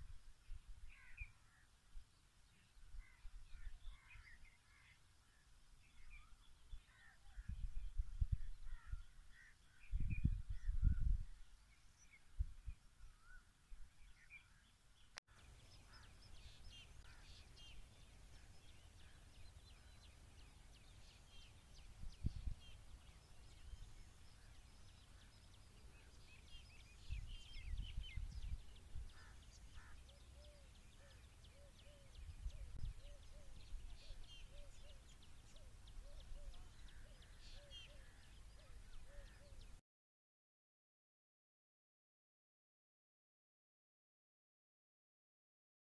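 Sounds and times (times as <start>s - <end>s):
small birds chirping: 0.0s - 39.8s
wind rumbling on microphone: 5.9s - 11.6s, 12.2s - 14.0s, 20.8s - 25.0s, 26.0s - 30.2s, 31.5s - 35.2s.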